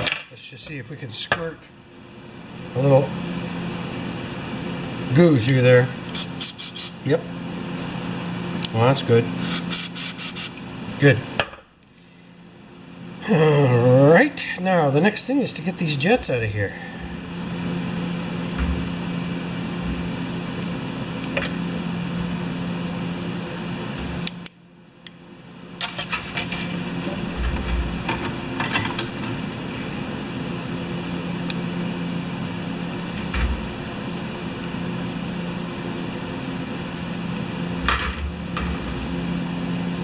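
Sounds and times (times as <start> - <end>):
low mechanical hum: 0.0 - 40.0.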